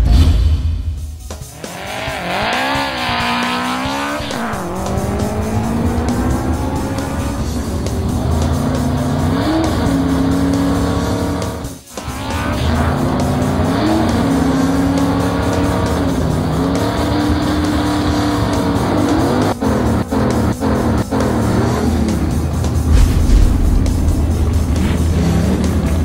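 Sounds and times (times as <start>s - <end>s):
background music: 0.0s - 26.0s
race car engine revving: 1.3s - 26.0s.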